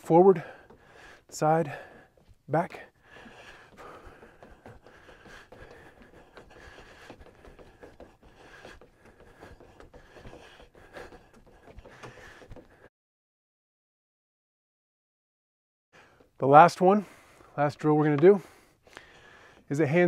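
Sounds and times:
sneaker footsteps on wooden deck: 0:00.0 - 0:12.9.

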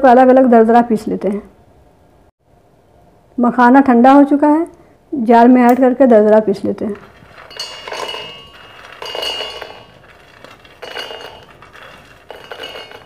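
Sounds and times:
puffed seeds clattering on steel: 0:06.8 - 0:13.0.

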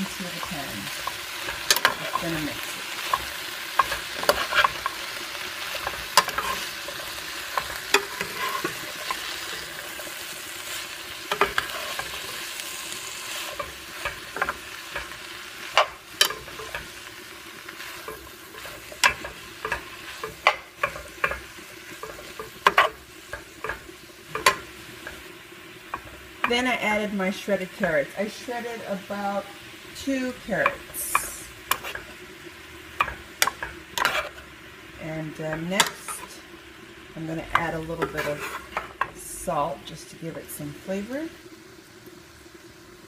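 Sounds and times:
utensil scraping a pan: 0:00.0 - 0:26.7, 0:30.5 - 0:32.2, 0:33.0 - 0:34.5, 0:37.2 - 0:39.2
food sizzling in a skillet: 0:00.0 - 0:43.0.

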